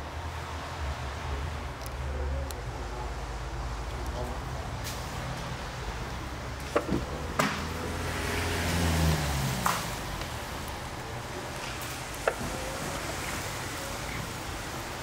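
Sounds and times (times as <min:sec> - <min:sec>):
car seat clicks: 0:06.7 - 0:07.1.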